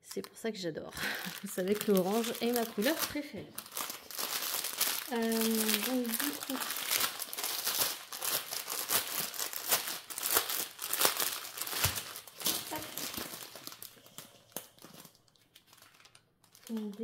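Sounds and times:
plastic packaging crinkling: 0.0 - 17.0.

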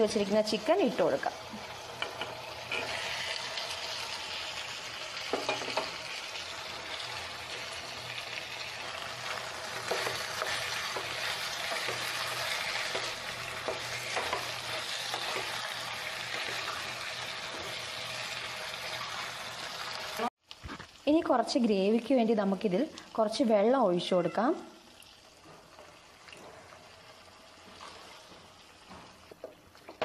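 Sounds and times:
chicken sizzling in a pan: 0.0 - 22.5
spatula scraping and knocking pan: 5.2 - 6.0, 8.9 - 17.8.

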